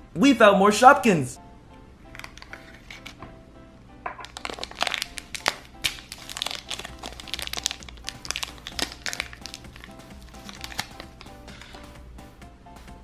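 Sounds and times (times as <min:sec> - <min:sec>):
background music: 0:00.0 - 0:13.0
plastic wrapper crinkling: 0:04.1 - 0:11.9.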